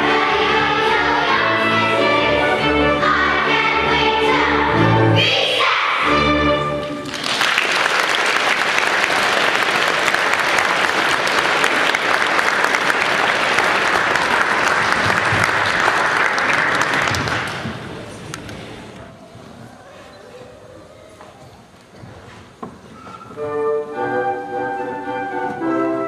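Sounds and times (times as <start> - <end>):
choir and orchestra chord: 0.0 - 6.9
audience applause: 6.9 - 18.3.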